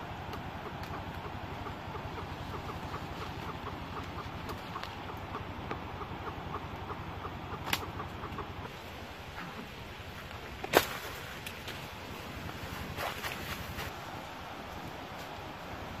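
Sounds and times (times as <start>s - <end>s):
bird clucking calls: 0.1s - 10.6s.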